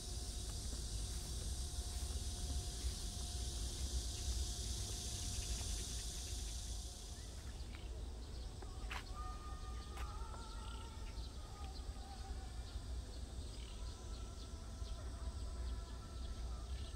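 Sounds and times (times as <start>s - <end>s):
high insect-like hiss: 0.0s - 16.9s.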